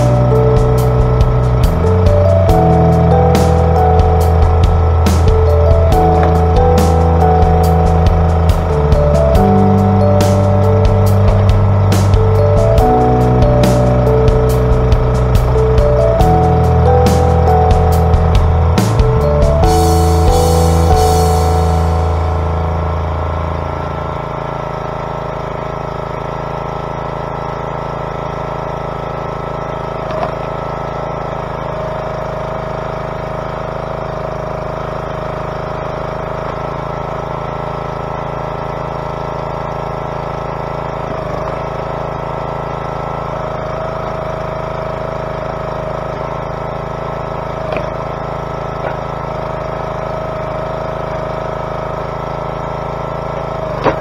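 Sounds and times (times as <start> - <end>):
small gas engine running: 0.0 - 54.0.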